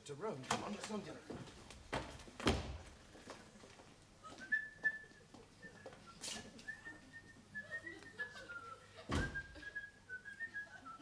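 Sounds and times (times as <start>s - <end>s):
person whistling a tune: 4.3s - 11.0s
thump: 9.1s - 9.5s.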